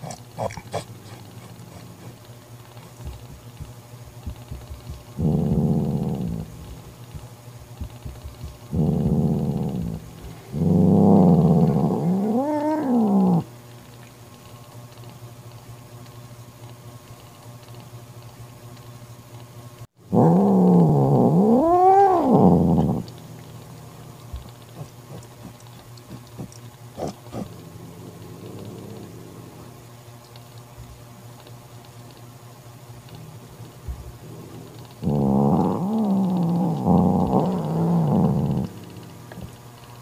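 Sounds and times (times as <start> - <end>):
cat growling and yowling: 0.0 - 2.2, 4.3 - 6.9, 7.8 - 13.5, 20.1 - 29.8, 33.2 - 39.5.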